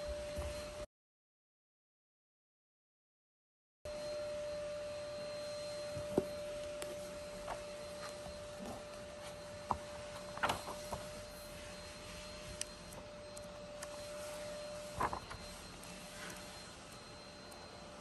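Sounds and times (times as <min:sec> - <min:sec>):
steady hum with hiss: 0:03.9 - 0:18.0
book pages rustling and turning: 0:06.2 - 0:16.6.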